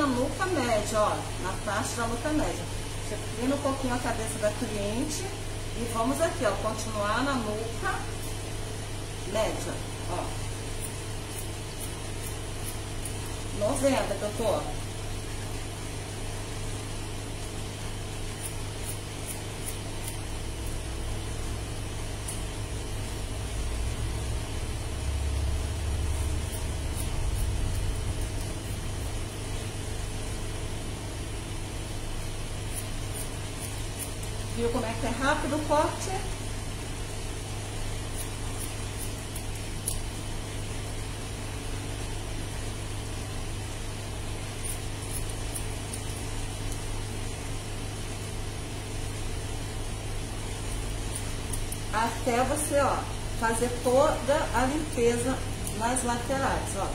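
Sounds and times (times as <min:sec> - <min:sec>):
mechanical room hum: 0:00.0 - 0:56.9
scissors snipping hair: 0:10.8 - 0:13.3, 0:18.3 - 0:20.8, 0:22.2 - 0:22.5, 0:26.1 - 0:29.2, 0:32.7 - 0:34.4, 0:38.1 - 0:40.1, 0:44.6 - 0:46.9, 0:50.7 - 0:52.0, 0:54.6 - 0:56.2.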